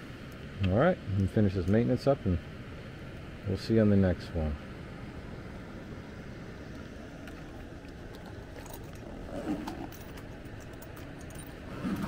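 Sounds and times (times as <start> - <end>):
air handler running: 0.0 - 12.0
tools rattling in bag: 8.5 - 12.0.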